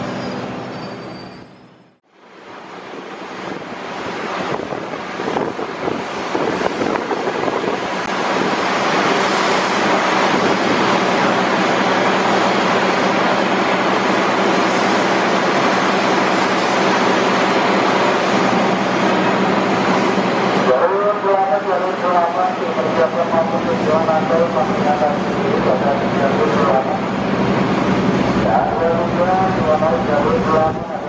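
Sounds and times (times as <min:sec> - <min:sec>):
electric train rolling: 0:00.0 - 0:21.1.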